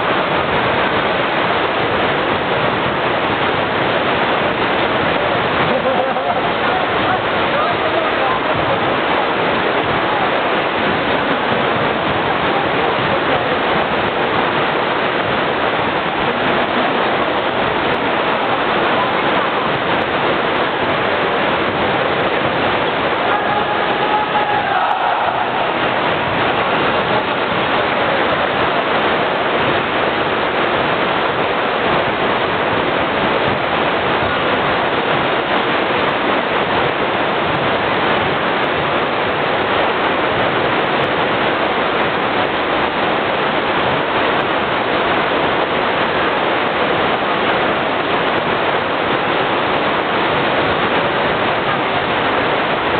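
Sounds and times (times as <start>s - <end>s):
indoor gymnasium din: 23.1s - 27.0s.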